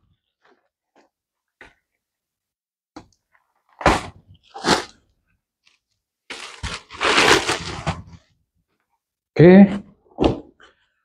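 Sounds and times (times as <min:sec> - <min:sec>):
packaging crackling and rustling: 0:05.6 - 0:08.3.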